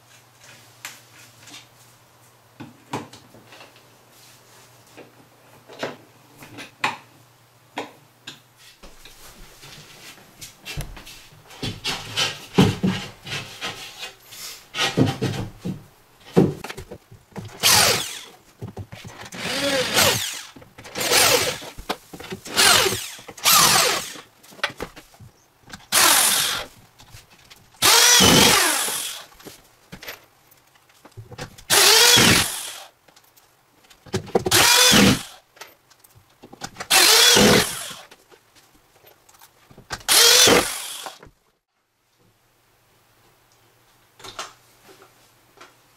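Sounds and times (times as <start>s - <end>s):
drill driving screws: 17.5s - 18.4s, 19.1s - 21.8s, 22.5s - 24.3s, 25.8s - 26.7s, 27.8s - 29.3s, 31.7s - 32.9s, 34.5s - 35.4s, 36.9s - 38.1s, 40.0s - 41.2s.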